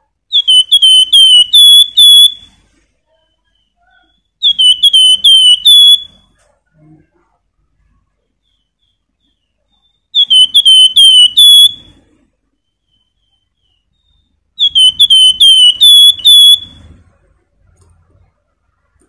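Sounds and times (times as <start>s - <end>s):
bird singing whistled song: 0.3s - 2.6s, 3.2s - 6.2s, 8.4s - 16.9s.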